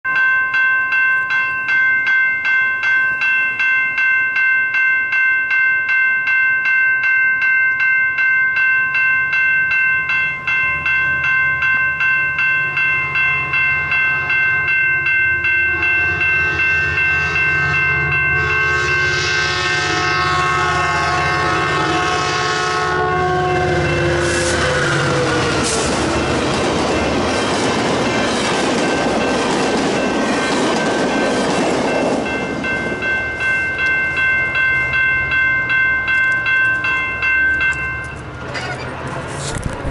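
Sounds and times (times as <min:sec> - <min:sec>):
crossing warning bell ringing: 0:00.0 - 0:39.4
train rumble: 0:10.0 - 0:39.9
train horn: 0:15.6 - 0:26.3.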